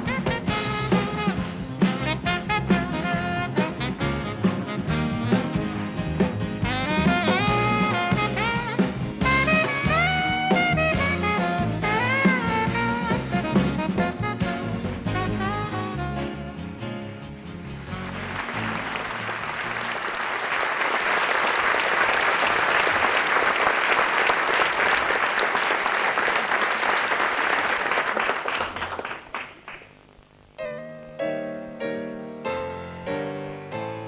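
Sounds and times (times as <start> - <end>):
piano repeated notes: 0.0 - 20.0, 30.5 - 34.0
band playing: 0.0 - 29.7
audience applauding: 17.9 - 29.9.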